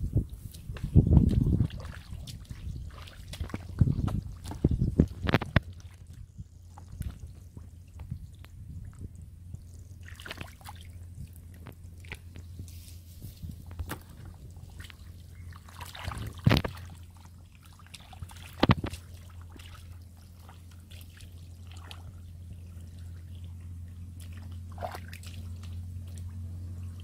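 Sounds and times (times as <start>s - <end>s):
steady low hum: 0.0s - 27.0s
dripping and small splashes: 0.1s - 27.0s
hands squelching in wet mud: 0.3s - 27.0s
loud wet slaps: 24.2s - 26.3s.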